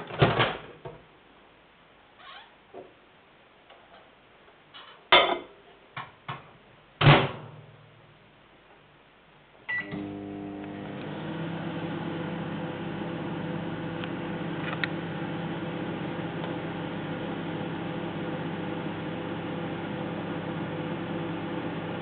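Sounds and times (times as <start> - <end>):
microwave oven humming: 9.7 - 22.0.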